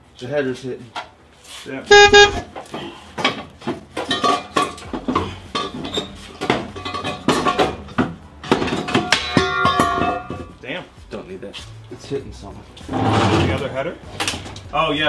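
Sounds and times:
metal clanking: 3.3 - 10.6.

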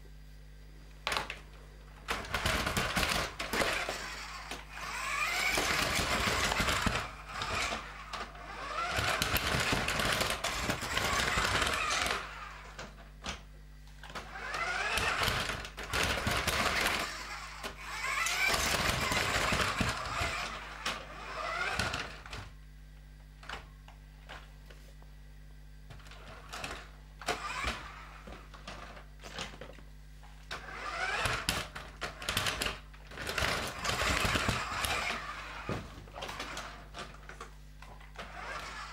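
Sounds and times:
toy car electric motor whining: 2.1 - 13.0, 14.1 - 22.6, 26.0 - 29.6, 30.5 - 37.4, 38.0 - 38.9.

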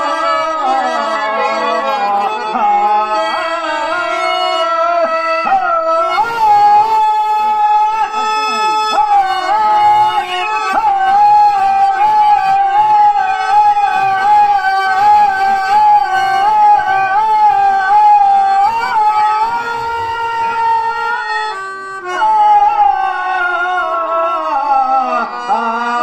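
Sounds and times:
man singing through microphone: 0.0 - 8.6
steady low accompanying note: 12.6 - 22.1.

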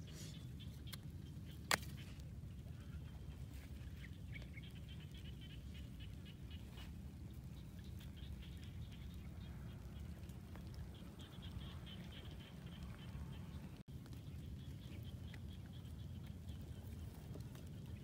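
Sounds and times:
low wind rumble on microphone: 0.0 - 18.0.

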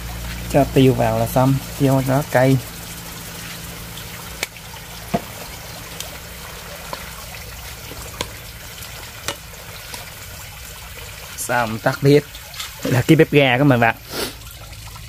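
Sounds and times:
greens sizzling in a skillet: 0.0 - 13.1, 14.1 - 14.4.

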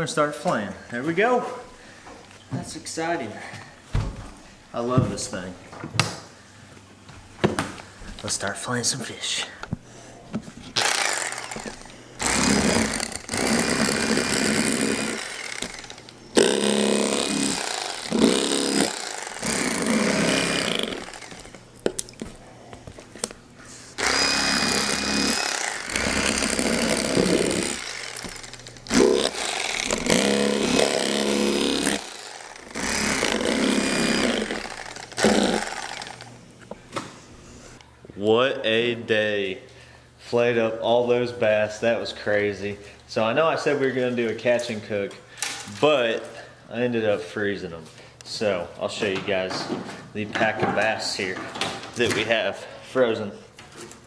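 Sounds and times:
electric knife motor whine: 10.8 - 21.6, 23.9 - 36.4.

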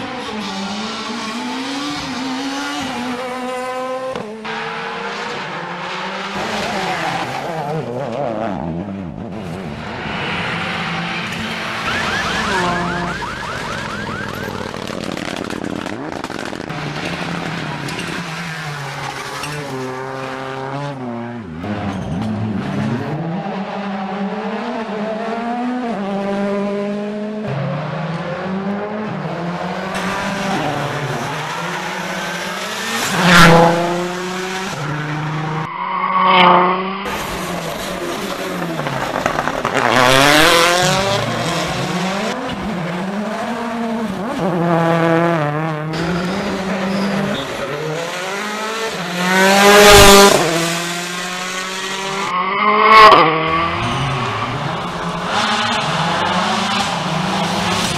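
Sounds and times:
rally cars revving past: 0.0 - 57.9.

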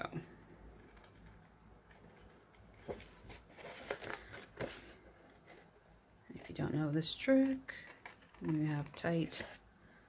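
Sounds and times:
paper rustling: 0.7 - 5.8
scissors snipping paper: 7.3 - 9.4.

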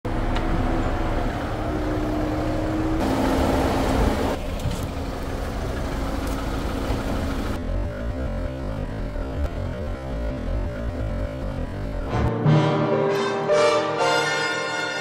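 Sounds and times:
car engine running: 1.0 - 12.1.

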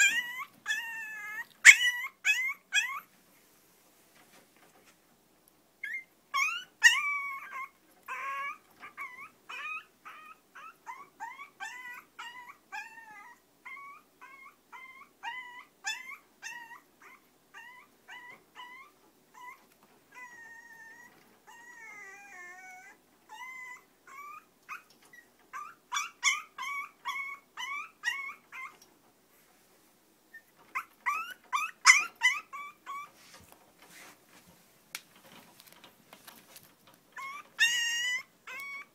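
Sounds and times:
puppy whimpering and yipping: 0.0 - 3.1, 5.8 - 28.8, 30.3 - 33.2, 37.2 - 38.9
puppy whining: 0.0 - 3.1, 5.8 - 28.9, 30.3 - 33.5, 37.1 - 38.9.

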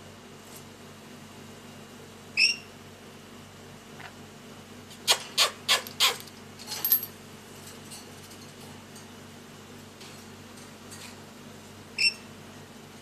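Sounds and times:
parrot squawking: 2.4 - 2.6, 5.0 - 6.2
bird chirp: 2.4 - 2.7.

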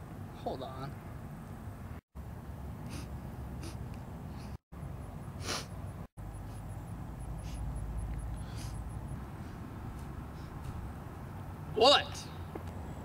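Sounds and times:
person sniffing: 2.8 - 4.6, 5.4 - 5.8, 7.4 - 7.7, 8.4 - 8.9.

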